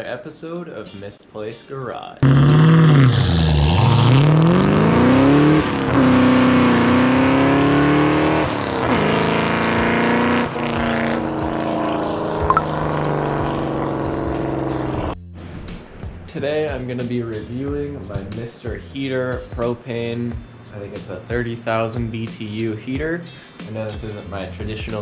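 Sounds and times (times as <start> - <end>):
car engine accelerating through gears: 2.2 - 15.2.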